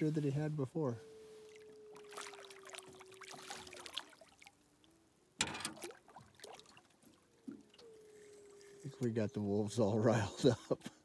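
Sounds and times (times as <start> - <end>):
wolf howling: 1.0 - 3.9
fish thrashing and splashing: 1.5 - 4.7, 5.5 - 9.0.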